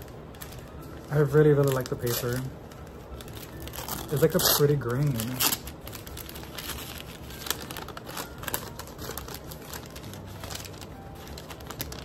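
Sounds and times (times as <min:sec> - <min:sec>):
paper wrapping crinkling: 0:00.0 - 0:12.0.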